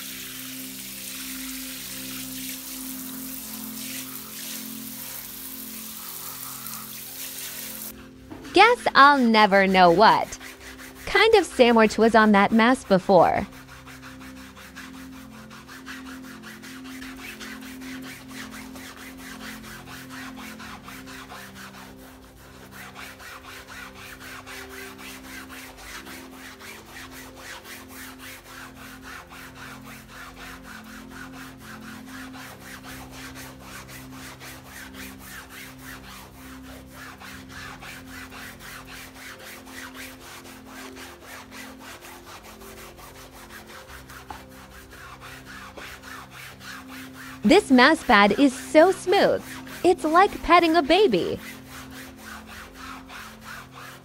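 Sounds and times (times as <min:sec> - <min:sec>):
sponge scrubbing wet fabric: 0:00.0 - 0:54.0.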